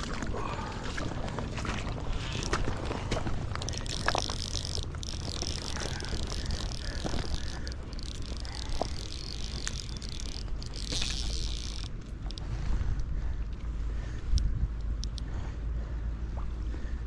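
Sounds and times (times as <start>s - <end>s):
wind rumble on microphone: 0.0s - 17.0s
fishing reel drag clicking: 3.6s - 13.6s, 14.4s - 15.3s.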